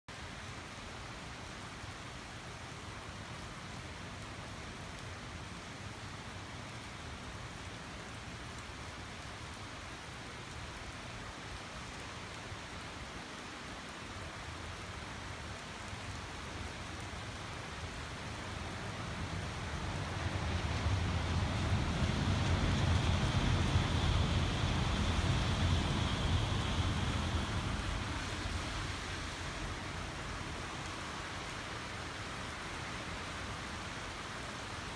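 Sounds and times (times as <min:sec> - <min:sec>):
heavy rain on roofs and pavement: 0:00.1 - 0:34.9
low rumble: 0:19.2 - 0:30.6.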